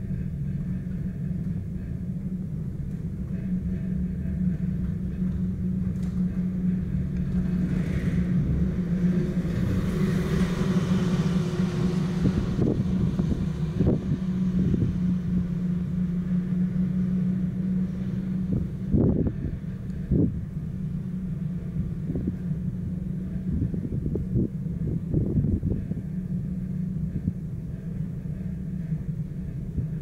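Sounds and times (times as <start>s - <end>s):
cable car hum and rumble: 0.0s - 30.0s
rushing swell: 6.2s - 30.0s.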